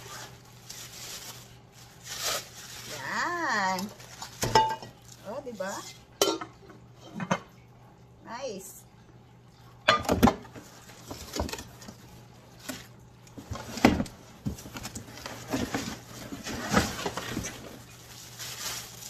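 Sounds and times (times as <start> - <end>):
cardboard and plastic wrap rustling: 0.0 - 5.8, 10.5 - 19.0.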